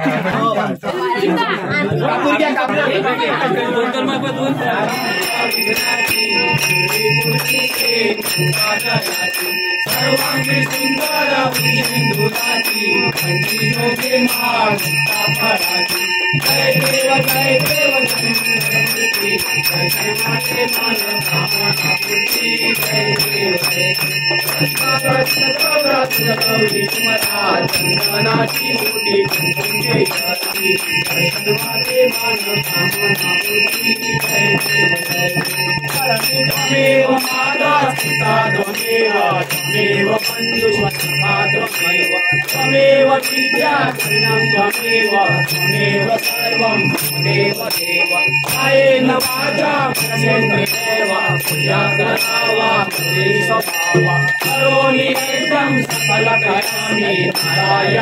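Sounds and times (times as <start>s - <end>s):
metallic jingling rhythm: 4.8s - 58.0s.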